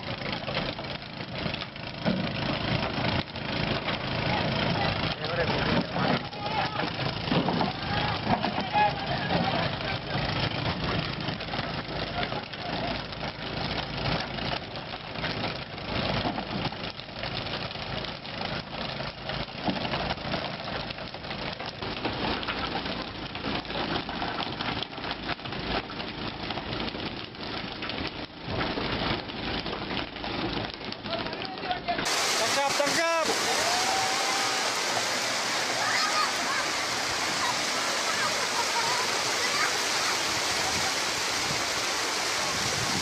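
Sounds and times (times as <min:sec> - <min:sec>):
boat engine running: 0:00.0 - 0:43.0
splashing water: 0:32.0 - 0:43.0.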